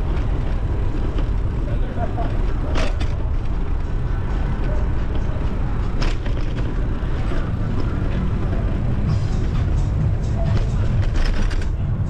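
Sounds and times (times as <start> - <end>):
road traffic noise: 0.0 - 12.0
wind rumble: 0.0 - 12.0.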